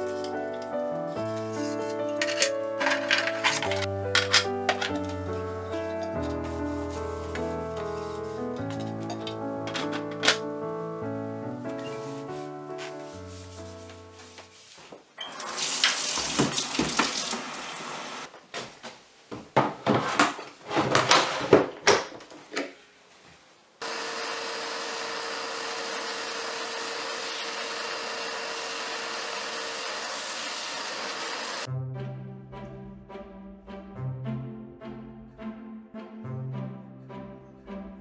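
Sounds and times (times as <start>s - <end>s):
vacuum cleaner running: 15.2s - 18.3s, 23.8s - 31.7s.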